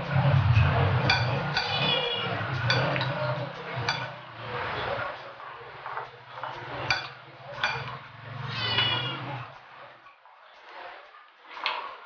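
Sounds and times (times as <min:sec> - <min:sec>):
utensil clinking against bowl: 0:01.0 - 0:04.2, 0:05.9 - 0:09.1.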